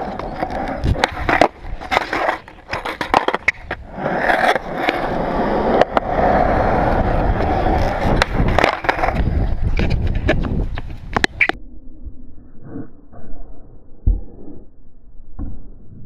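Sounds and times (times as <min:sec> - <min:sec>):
skateboard wheels rolling on concrete: 0:00.0 - 0:11.6
skateboard deck clacks: 0:07.4 - 0:11.6.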